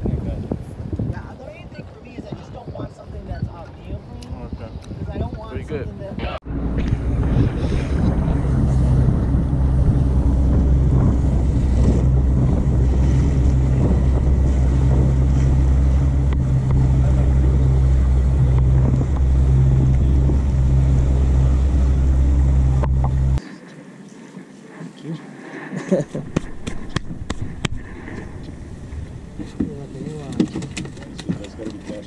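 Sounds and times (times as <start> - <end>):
wind buffeting microphone: 0.0 - 23.4, 26.0 - 32.0
motorboat engine droning: 6.2 - 23.4, 26.5 - 32.0
hull rushing through water: 6.4 - 23.4, 24.4 - 32.0.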